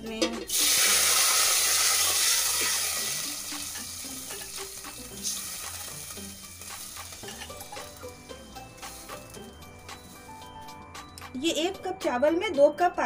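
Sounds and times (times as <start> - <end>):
rice sizzling in hot oil: 0.4 - 10.7.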